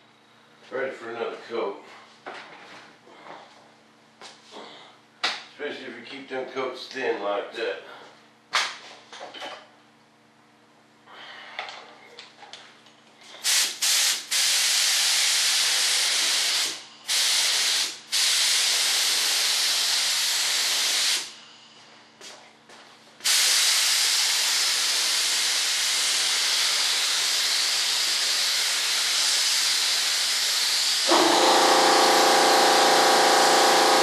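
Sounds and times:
spray gun hissing: 0:13.4 - 0:21.3, 0:23.2 - 0:34.0.

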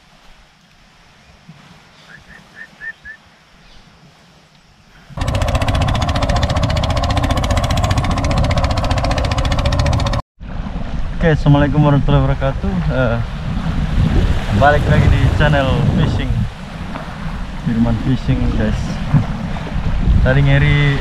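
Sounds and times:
boat engine chugging: 0:05.2 - 0:10.2.

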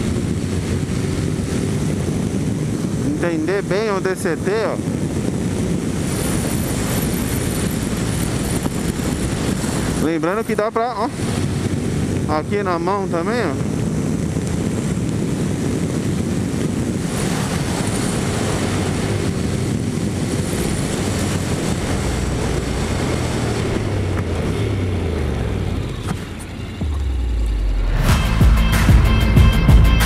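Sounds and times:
wind rush on microphone: 0:00.0 - 0:27.8
motorcycle engine running: 0:00.0 - 0:29.9
music: 0:26.8 - 0:30.0.

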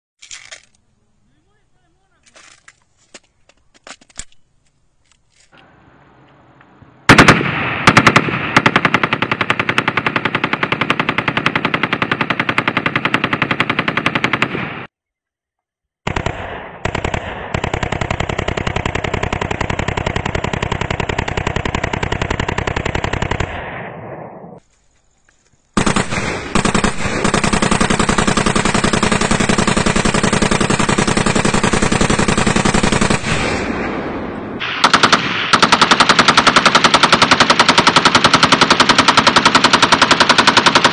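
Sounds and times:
single rifle shots: 0:06.6 - 0:10.1, 0:16.0 - 0:18.0, 0:25.8 - 0:28.4, 0:32.8 - 0:40.9.

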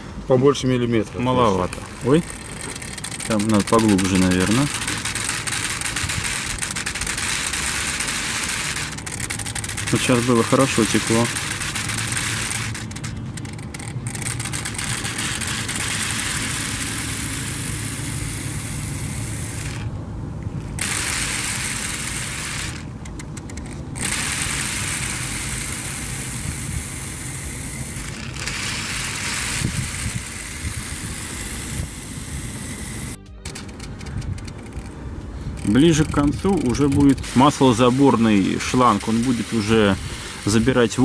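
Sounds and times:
electric suction motor running: 0:01.0 - 0:20.0, 0:20.7 - 0:23.0, 0:23.7 - 0:33.8, 0:35.5 - 0:41.0
vacuum hiss: 0:37.3 - 0:41.0.

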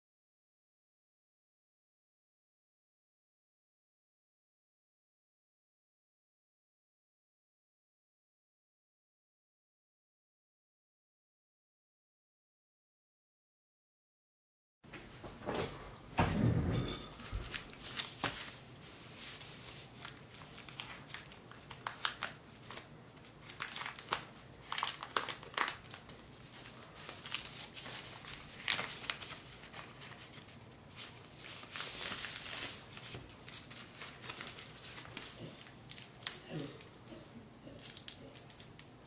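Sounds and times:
plastic bag crinkling: 0:19.5 - 0:37.2, 0:37.8 - 0:39.0.

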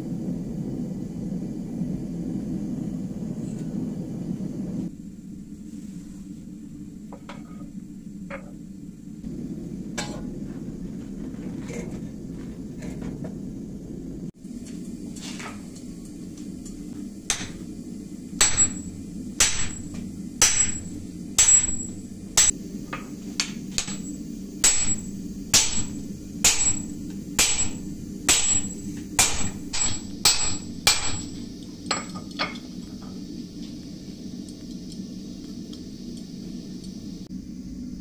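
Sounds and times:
steady low hum: 0:00.0 - 0:38.0
hammer striking steel on anvil: 0:10.0 - 0:10.3, 0:17.3 - 0:17.7, 0:18.4 - 0:33.1.

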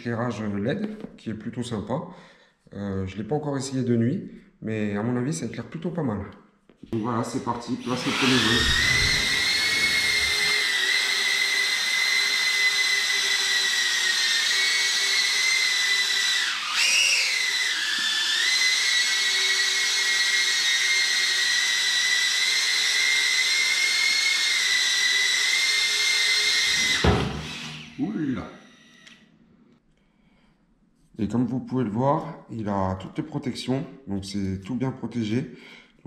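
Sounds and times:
drone motors whining: 0:07.0 - 0:11.9, 0:26.6 - 0:29.3.

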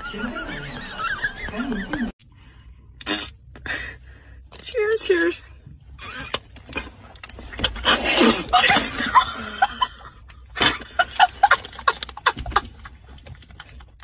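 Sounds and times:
women laughing and shrieking: 0:00.0 - 0:02.1.

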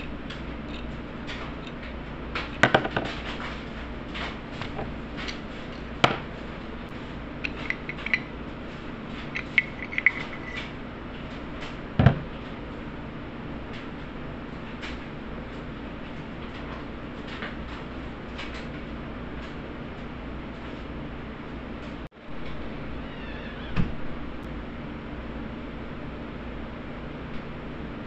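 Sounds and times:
steady low hum: 0:00.0 - 0:28.0
metal squeaks: 0:07.5 - 0:08.3, 0:09.2 - 0:10.8.

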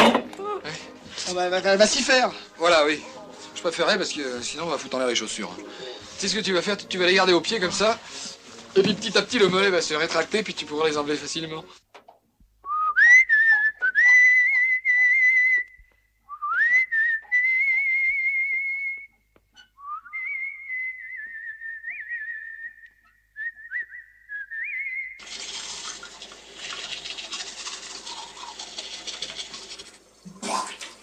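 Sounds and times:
person whistling a tune: 0:12.6 - 0:19.2, 0:19.8 - 0:25.2.

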